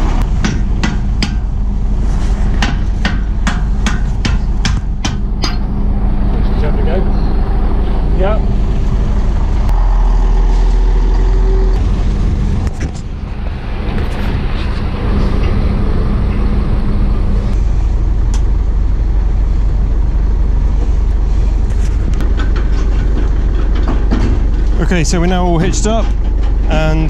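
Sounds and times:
heavy engine rumbling: 0.0 - 27.0
steady hum: 0.0 - 27.0
sharp knocks: 0.2 - 1.5, 2.5 - 5.7.

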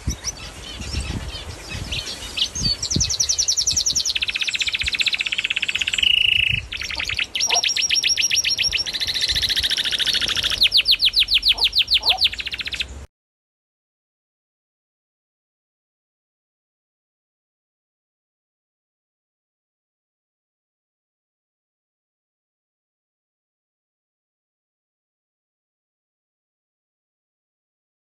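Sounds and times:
songbird trilling: 0.0 - 13.0.

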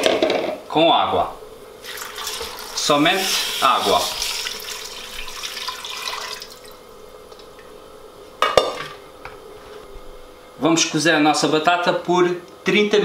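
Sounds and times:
water pouring and splashing: 1.8 - 6.8.

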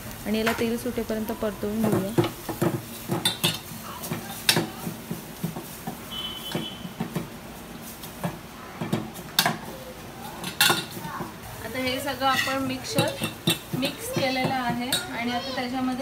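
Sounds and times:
paste frying in oil: 0.0 - 16.0
metal spoon scraping steel pot: 12.2 - 15.0.

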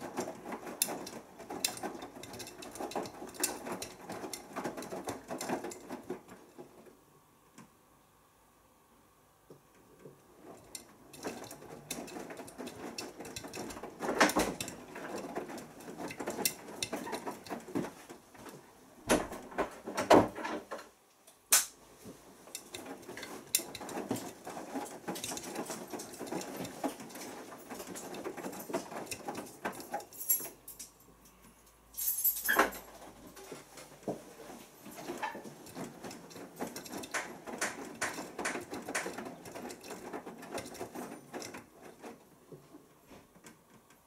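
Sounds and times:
water sloshing in washing machine: 0.0 - 6.8, 22.0 - 30.2, 33.0 - 42.3.

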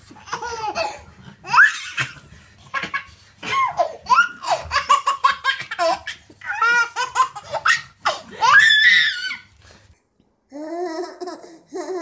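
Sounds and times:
baby laughing: 0.1 - 9.5, 10.6 - 12.0.

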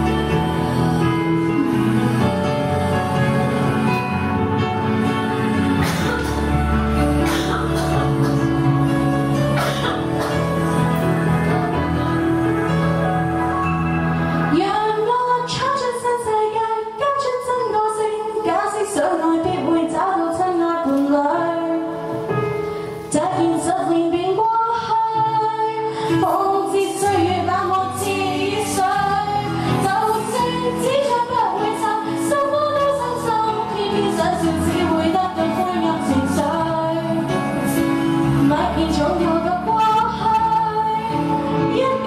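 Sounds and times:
instrumental accompaniment: 0.0 - 16.7, 20.4 - 42.0
woman singing into a microphone: 14.5 - 22.2, 23.0 - 37.7, 38.3 - 42.0.

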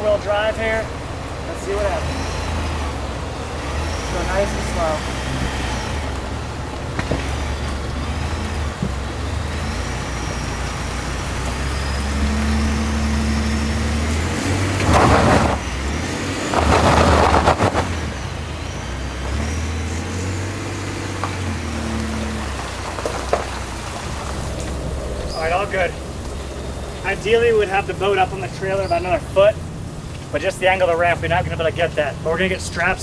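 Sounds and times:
truck engine rumbling: 0.0 - 33.0
loud rushing noises: 12.1 - 18.7.

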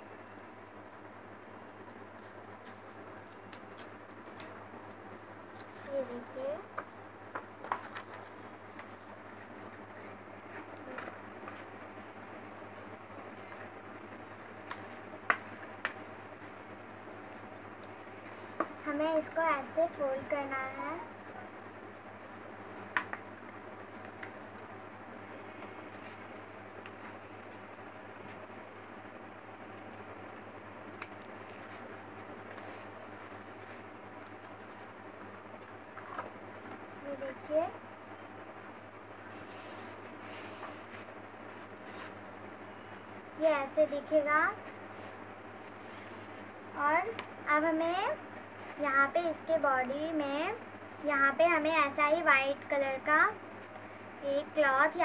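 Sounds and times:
faint steady hum: 0.0 - 55.0
steady background hiss: 0.0 - 55.0
paper rustling: 31.0 - 34.9, 39.2 - 42.2.

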